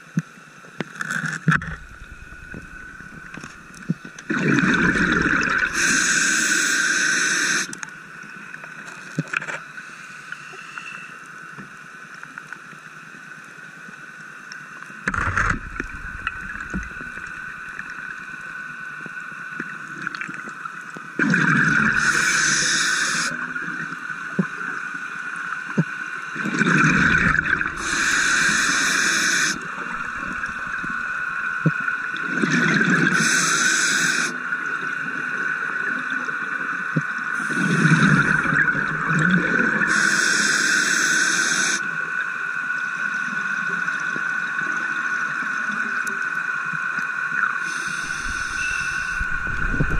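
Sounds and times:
faint steady whine: 0:00.0 - 0:49.9
bubbling regulator exhalations: 0:01.5 - 0:06.8, 0:15.1 - 0:18.1, 0:21.2 - 0:23.3, 0:26.4 - 0:31.7, 0:47.7 - 0:49.9.

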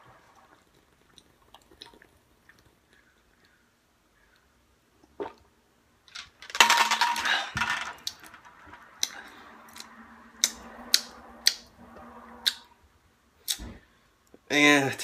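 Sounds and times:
man gulping drink: 0:00.4 - 0:03.0, 0:05.0 - 0:05.5
lip smacks: 0:00.6 - 0:03.6, 0:13.4 - 0:13.8.

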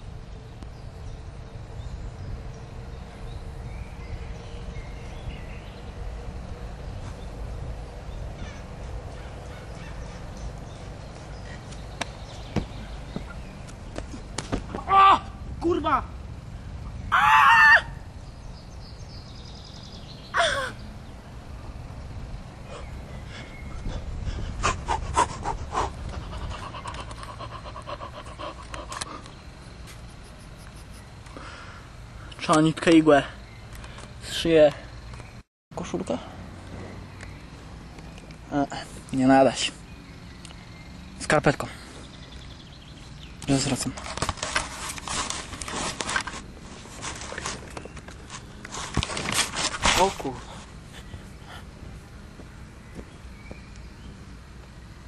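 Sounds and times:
wind rumbling on microphone: 0:00.0 - 0:29.7
heavy panting and gasps: 0:22.7 - 0:30.2.

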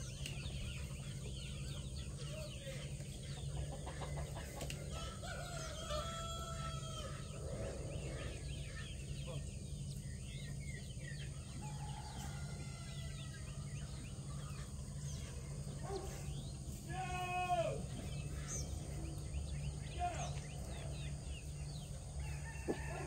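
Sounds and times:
chickens clucking: 0:00.0 - 0:16.9, 0:17.8 - 0:23.0
low steady hum: 0:00.0 - 0:23.0
rooster crowing: 0:04.9 - 0:07.4, 0:11.5 - 0:13.9, 0:21.7 - 0:23.0.

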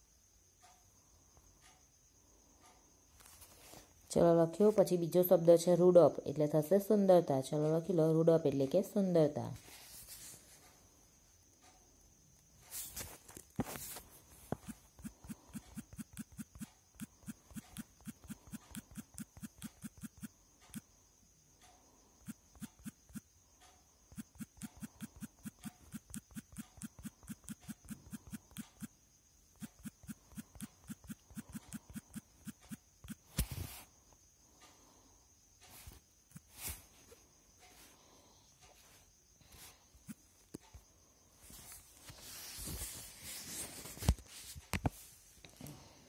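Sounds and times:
short evenly spaced clicks: 0:14.6 - 0:33.3.

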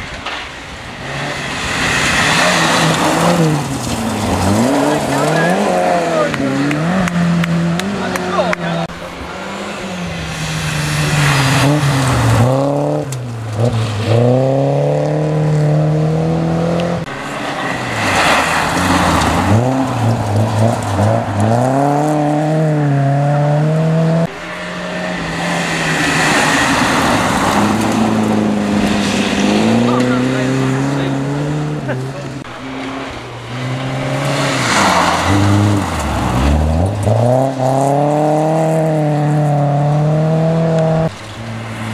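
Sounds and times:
rally car engines revving: 0:00.0 - 0:41.9
gravel hissing under tyres: 0:00.1 - 0:05.5, 0:09.0 - 0:14.3, 0:17.1 - 0:22.1, 0:24.3 - 0:30.4, 0:32.5 - 0:37.6.

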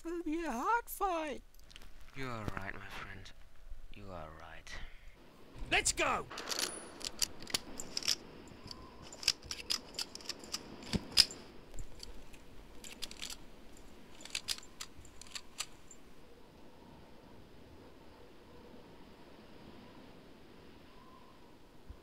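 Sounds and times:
gunfire cracks: 0:06.3 - 0:08.3.

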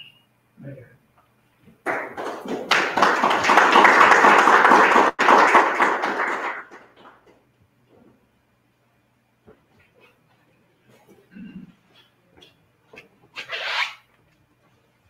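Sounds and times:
audience applauding: 0:01.8 - 0:07.3.

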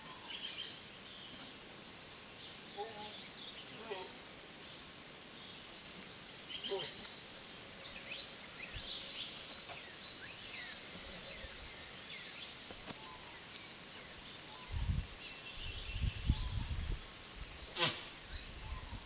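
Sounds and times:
small birds chirping: 0:00.0 - 0:19.0
wind buffeting microphone: 0:14.6 - 0:19.0.

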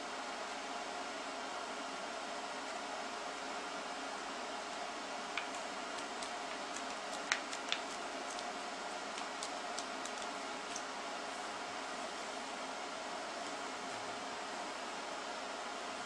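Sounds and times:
paper crinkling and clicking: 0:05.4 - 0:08.5, 0:09.1 - 0:10.9.

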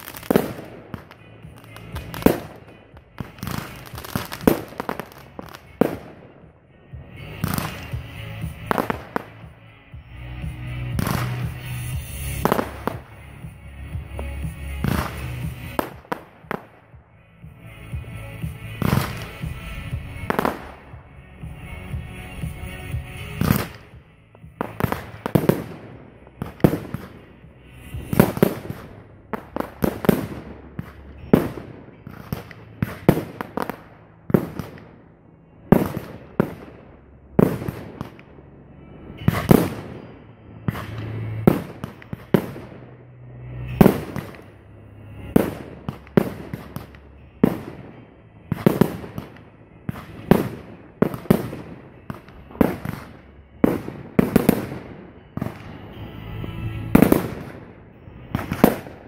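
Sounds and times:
fireworks bursting with bangs: 0:00.0 - 0:59.0.

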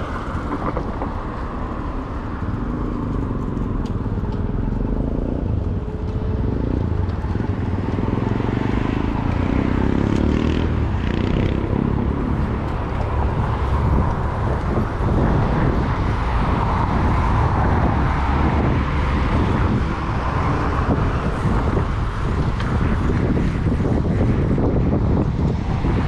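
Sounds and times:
street traffic: 0:00.0 - 0:26.0
wind rumble on microphone: 0:00.0 - 0:26.0.

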